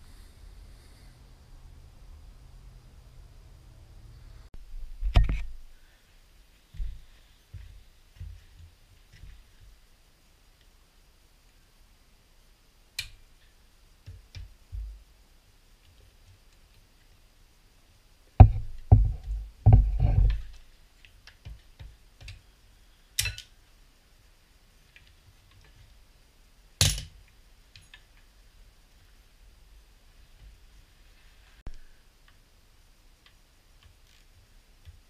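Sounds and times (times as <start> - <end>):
heavy thumps: 6.7 - 9.4, 18.4 - 20.6.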